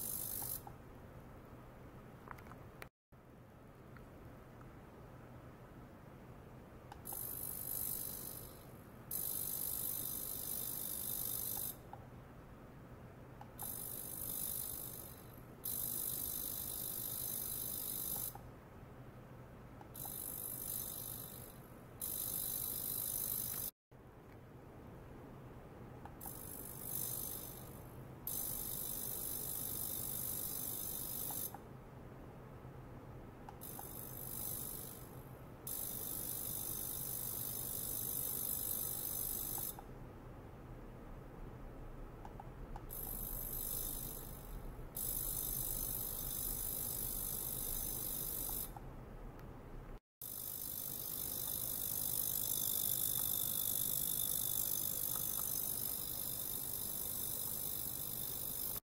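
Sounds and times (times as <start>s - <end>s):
high thin ultrasonic hiss: 0.0s - 0.8s, 6.9s - 11.9s, 13.4s - 18.5s, 19.8s - 23.7s, 26.1s - 31.6s, 33.6s - 39.8s, 42.8s - 48.8s, 50.2s - 58.8s
faint ticks: 6.9s - 12.1s, 13.4s - 18.5s, 19.8s - 23.7s, 35.7s - 39.9s, 50.4s - 58.8s.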